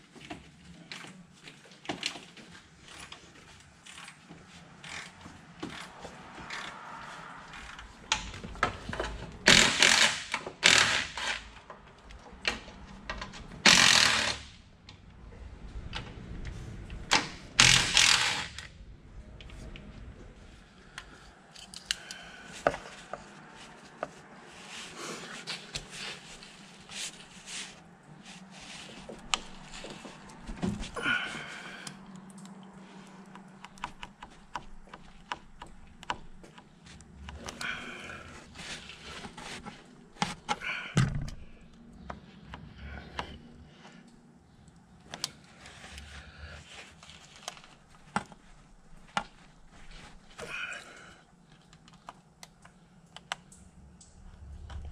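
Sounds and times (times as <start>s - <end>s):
hand tools clicking and knocking: 2.9s - 14.4s.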